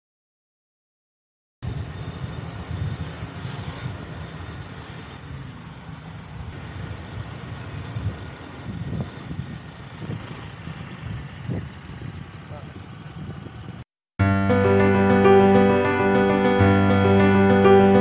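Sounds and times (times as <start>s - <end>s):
vehicle engine and road noise: 1.6s - 13.9s.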